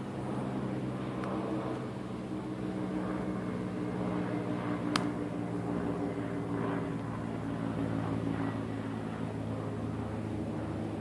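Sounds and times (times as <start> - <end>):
propeller airplane engines droning: 0.0 - 11.0.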